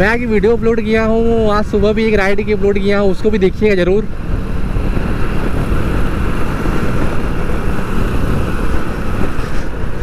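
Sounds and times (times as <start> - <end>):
road noise: 0.0 - 10.0
rushing wind: 0.0 - 10.0
motorcycle engine running: 4.1 - 10.0.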